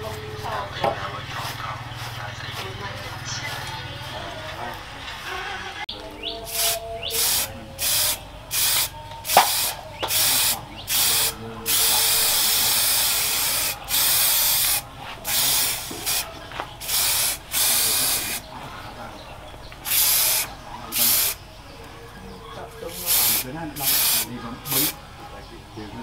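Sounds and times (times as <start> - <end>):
spray can hissing: 6.4 - 18.4, 19.8 - 21.4, 22.9 - 25.0.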